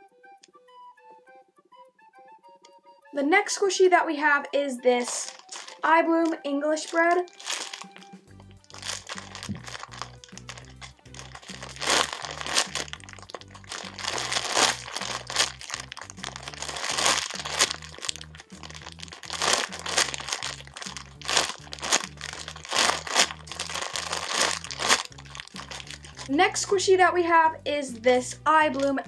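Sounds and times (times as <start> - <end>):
plastic bag crinkling: 4.8 - 26.9, 28.7 - 29.0
background music with bass line: 7.0 - 29.0.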